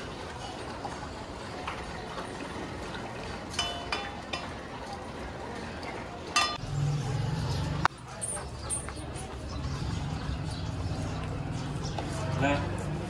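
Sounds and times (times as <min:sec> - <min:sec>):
metal bowls clinking: 0:03.5 - 0:05.0, 0:06.3 - 0:06.8.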